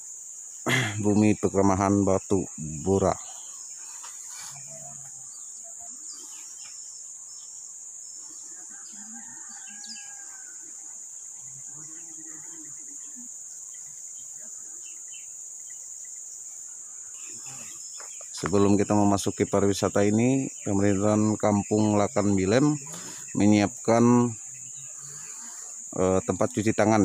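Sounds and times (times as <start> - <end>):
high-pitched insect drone: 0.0 - 27.0
faint bird chirps: 2.4 - 10.8.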